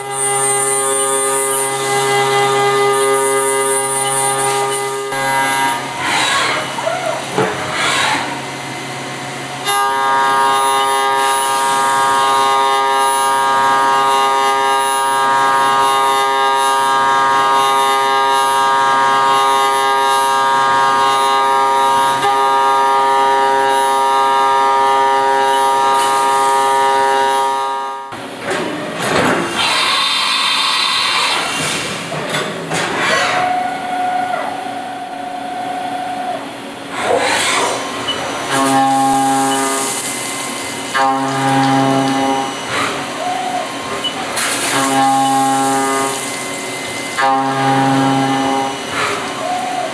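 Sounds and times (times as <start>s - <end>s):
mill cutter whine: 36.1s - 49.9s.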